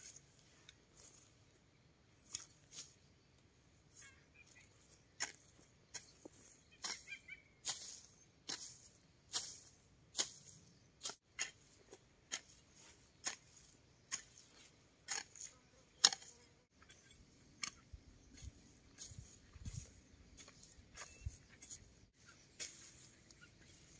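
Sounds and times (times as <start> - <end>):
garden hoe chopping hard soil: 5.2 - 17.8.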